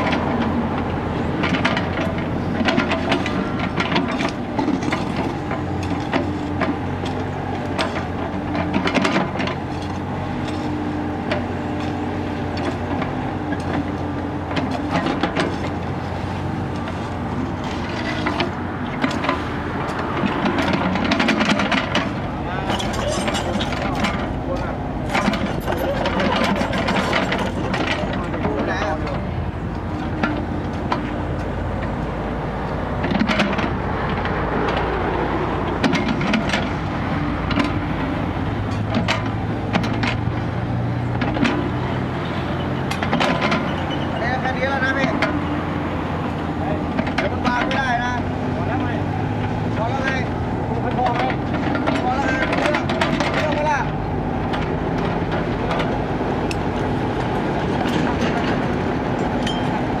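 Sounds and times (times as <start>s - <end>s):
diesel engine running: 0.0s - 60.0s
sharp clicks and knocks: 17.6s - 32.0s, 32.6s - 38.0s, 38.6s - 40.4s, 46.9s - 60.0s
bucket clanks and knocks: 38.8s - 40.3s.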